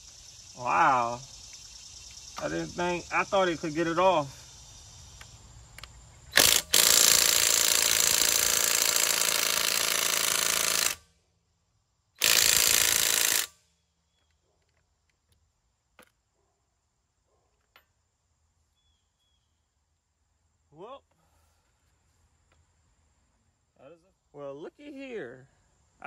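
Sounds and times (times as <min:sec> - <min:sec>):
impact wrench hammering: 0:12.2 - 0:13.5.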